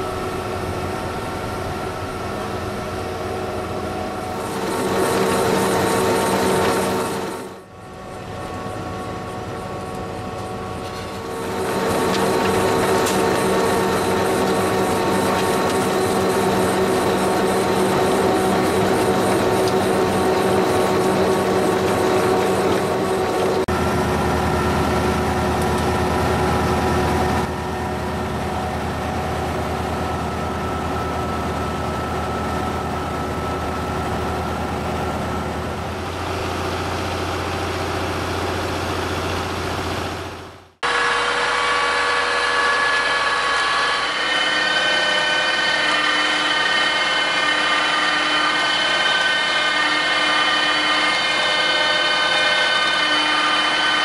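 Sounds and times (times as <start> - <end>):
harvesting machine running: 0.0 - 54.0
tractor and harvester humming: 0.0 - 54.0.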